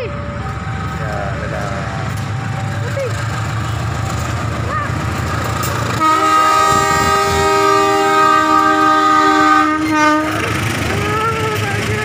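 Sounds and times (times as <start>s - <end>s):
passing train rumble: 0.0s - 12.0s
locomotive air horn blast: 6.0s - 10.6s.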